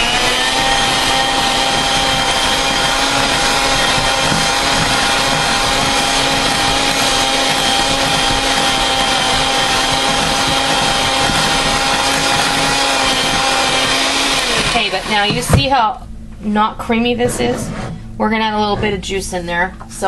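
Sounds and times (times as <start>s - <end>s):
electric hand mixer whine: 0.0s - 15.7s.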